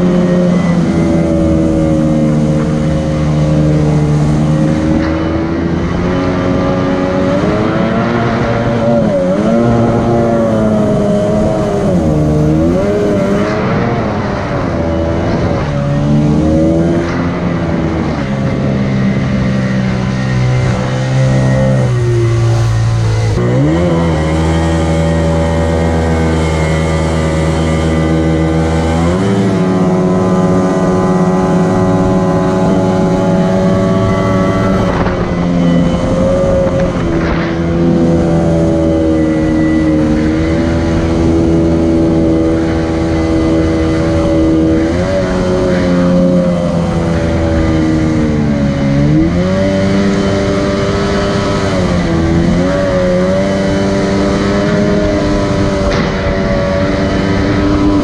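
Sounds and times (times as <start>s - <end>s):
outboard motor running: 0.0s - 7.2s, 17.6s - 51.2s.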